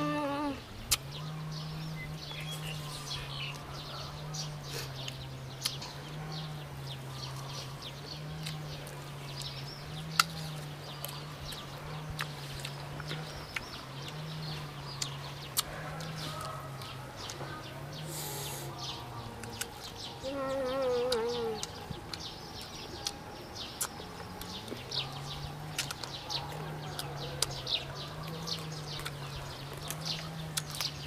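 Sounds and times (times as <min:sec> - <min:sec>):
wavering animal call: 0:00.0 - 0:00.7, 0:20.2 - 0:21.8
birds chirping: 0:00.0 - 0:31.0
crisp biting and chewing: 0:08.2 - 0:14.3, 0:23.8 - 0:31.0.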